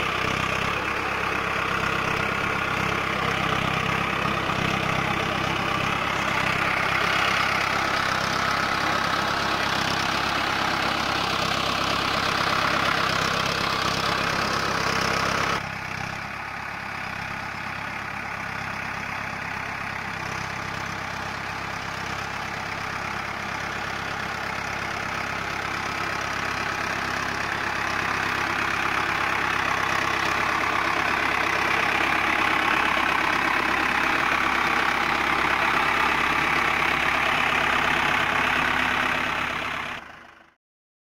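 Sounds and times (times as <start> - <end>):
dozer blade pushing soil: 0.0 - 15.6, 22.9 - 40.0
tractor diesel engine running: 0.0 - 40.6.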